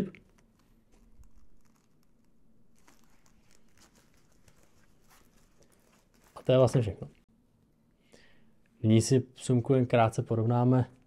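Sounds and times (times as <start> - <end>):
fabric rustling: 0.2 - 7.2.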